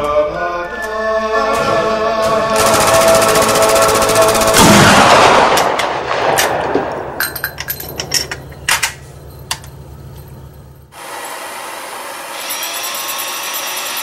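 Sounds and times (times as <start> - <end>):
sharper quieter gunshots: 2.4 - 7.2
loud gunshot: 4.6 - 6.9.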